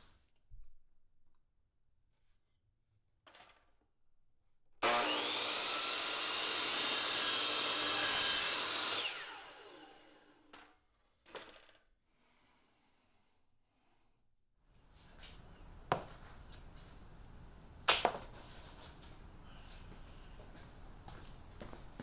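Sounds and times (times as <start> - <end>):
miter saw cutting: 4.8 - 10.3.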